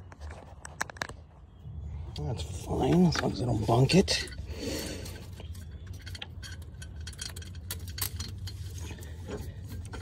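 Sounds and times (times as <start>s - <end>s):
metal pipe parts clicking: 2.9s - 10.0s.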